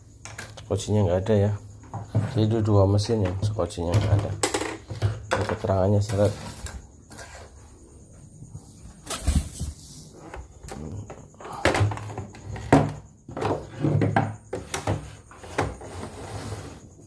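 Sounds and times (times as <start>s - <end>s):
plastic parts knocking on wood: 3.0s - 5.7s.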